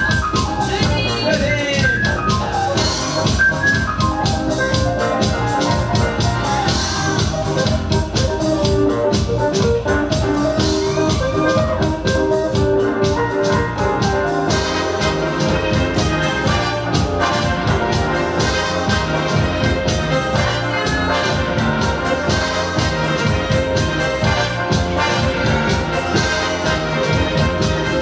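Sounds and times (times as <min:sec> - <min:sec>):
electronic dance music with beat: 0:00.0 - 0:28.0.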